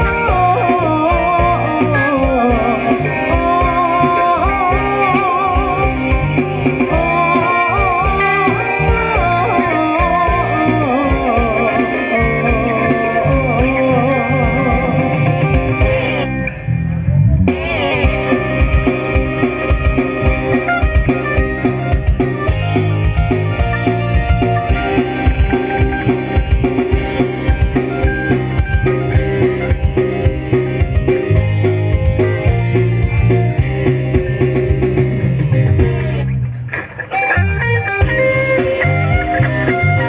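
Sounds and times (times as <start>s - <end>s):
woman singing: 0.0s - 6.0s, 6.9s - 15.1s
live rock band through pa: 0.0s - 40.0s.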